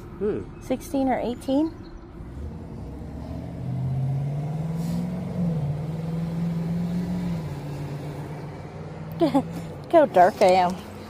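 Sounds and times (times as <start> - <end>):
vehicle engine humming: 0.0 - 11.0.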